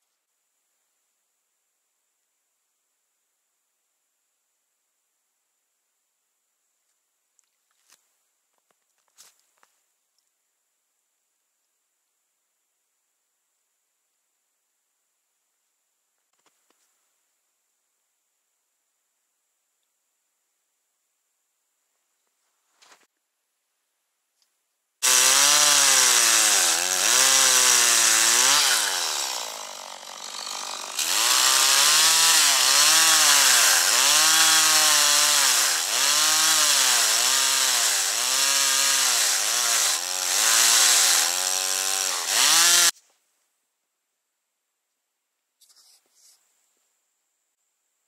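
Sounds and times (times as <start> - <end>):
chainsaw cutting wood: 25.0 - 43.0.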